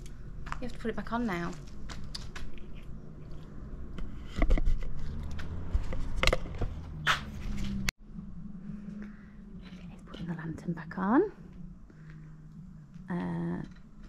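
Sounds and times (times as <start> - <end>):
sharp knocks and scrapes: 2.4 - 7.9.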